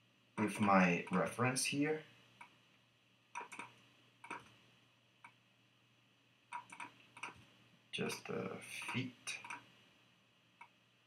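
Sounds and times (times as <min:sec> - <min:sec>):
computer mouse clicks: 0:03.3 - 0:04.6, 0:06.5 - 0:08.2, 0:08.8 - 0:09.7, 0:10.6 - 0:10.8.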